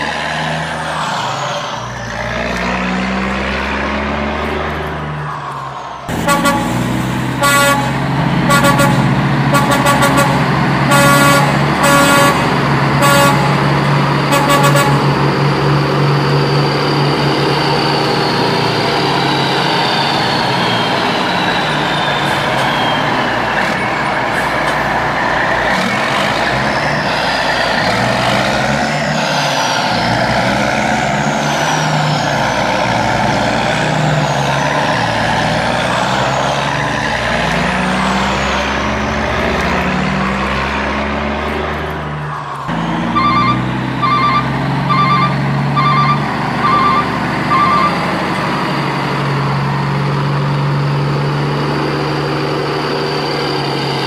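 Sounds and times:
truck engine running: 0.0 - 54.0
short horn toots: 6.2 - 13.7, 14.3 - 15.1.

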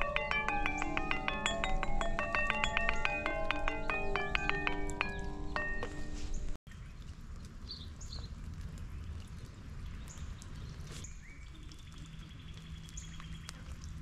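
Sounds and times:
bird chirps: 0.0 - 6.6.

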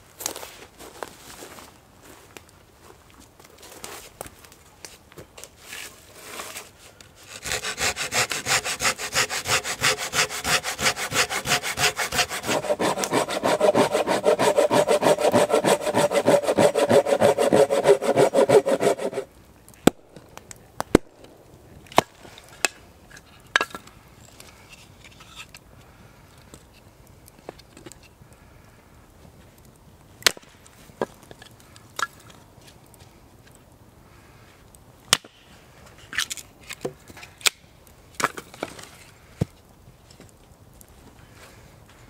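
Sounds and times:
hand saw cutting firewood: 5.7 - 20.0.

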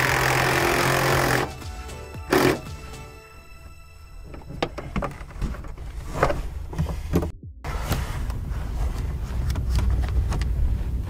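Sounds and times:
steady low rumble: 4.8 - 11.0.

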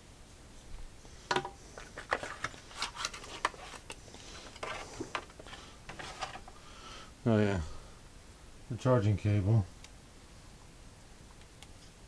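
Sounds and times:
cardboard packaging rustles: 1.6 - 6.6.

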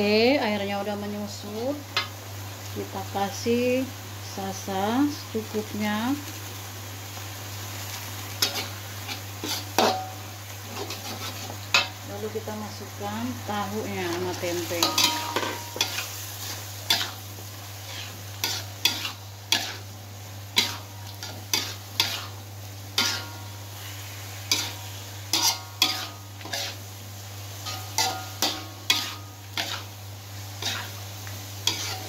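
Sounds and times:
frying sizzle: 0.0 - 32.0
metal spatula scraping a wok: 8.4 - 11.9, 14.3 - 26.9, 27.6 - 30.0, 30.6 - 31.0, 31.6 - 32.0.

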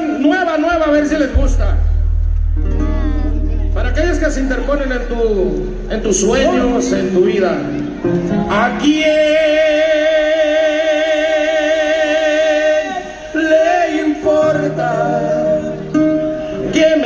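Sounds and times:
backing music: 0.3 - 17.0
person singing with vibrato: 2.5 - 4.1.

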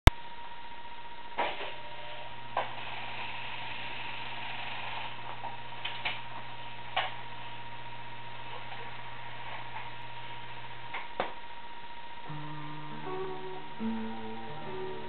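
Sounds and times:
jukebox motor hum: 12.2 - 15.0.

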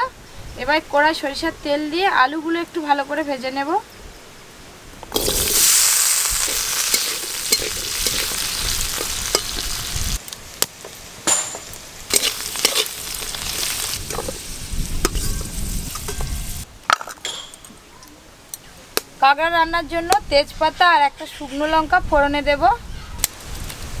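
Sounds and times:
oil sizzling in a wok: 5.1 - 11.1, 11.7 - 16.7.

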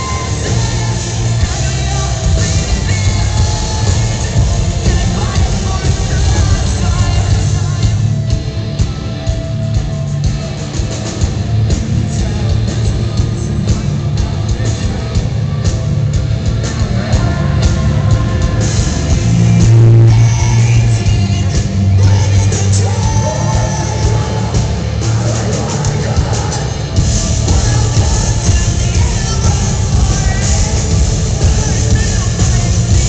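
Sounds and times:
person singing: 0.0 - 9.0, 16.6 - 33.0
heavy bass: 0.0 - 33.0
live rock band playing: 0.0 - 33.0.

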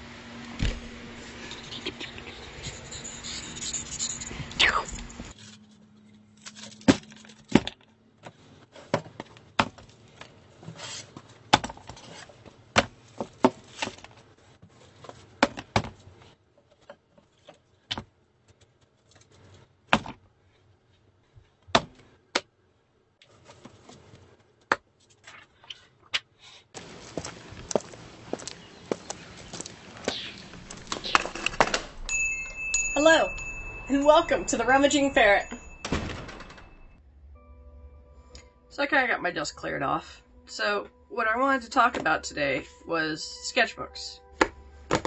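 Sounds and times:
paper scraping on desk: 10.6 - 11.3.

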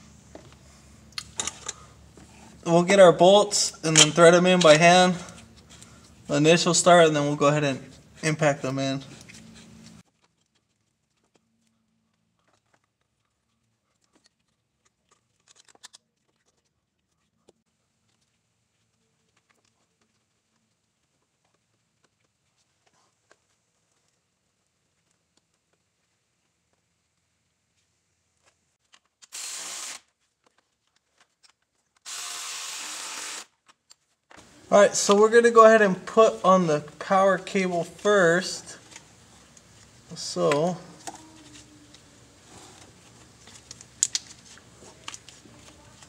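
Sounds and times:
impact wrench running: 29.3 - 30.1, 32.0 - 33.5.

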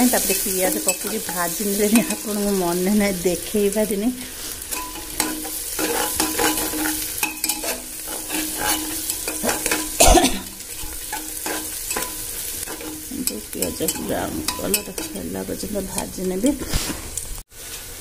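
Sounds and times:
onions sizzling in hot oil: 0.0 - 18.0
spoon scraping a pot: 4.6 - 17.3
metal clank: 4.7 - 15.4.

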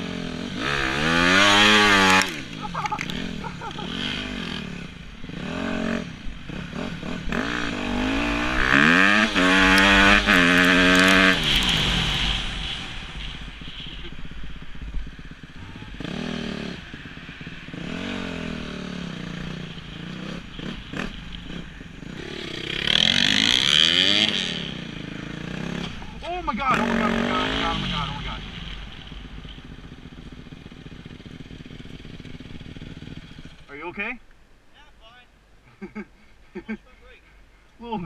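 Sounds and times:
dirt bike engine revving: 0.0 - 34.1
wind rumble: 0.6 - 26.9.

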